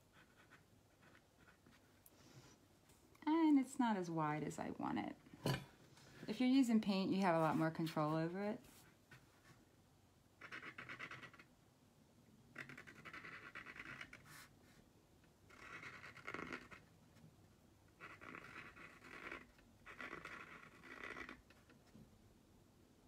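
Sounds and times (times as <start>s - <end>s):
pen tip scratching on globe: 10.4s - 11.5s, 12.5s - 14.5s, 15.5s - 16.9s, 17.9s - 21.8s.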